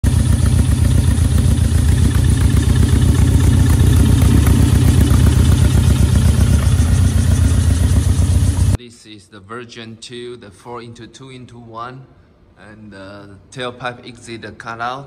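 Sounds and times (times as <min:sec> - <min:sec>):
car engine idling: 0:00.0 - 0:08.8.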